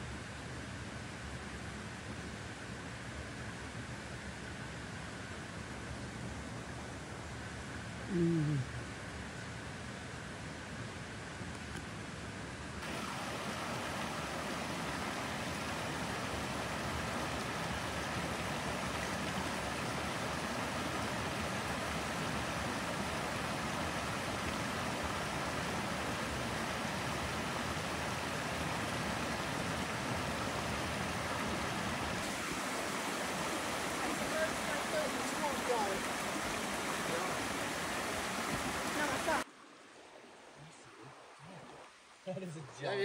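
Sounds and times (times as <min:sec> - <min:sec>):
creek rushing over rocks: 0:12.8 - 0:42.1.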